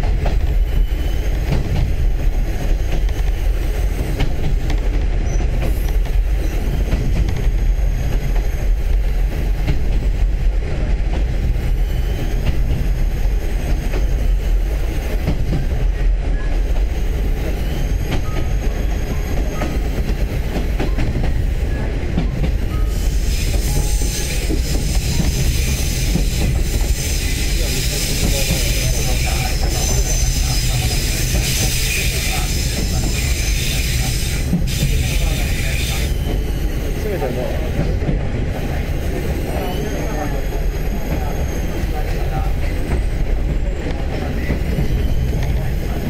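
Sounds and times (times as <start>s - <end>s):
train engine and wheels rumbling: 0.0s - 46.0s
high-pitched wheel squeal: 0.5s - 1.8s, 11.7s - 14.6s, 16.9s - 19.9s, 22.7s - 37.3s, 39.1s - 46.0s.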